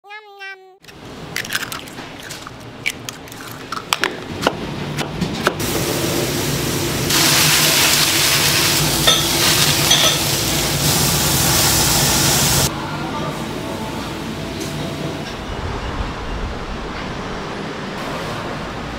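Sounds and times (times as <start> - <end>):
meat sizzling over flame: 5.6 - 12.7
metal kitchenware clinking: 9.0 - 10.3.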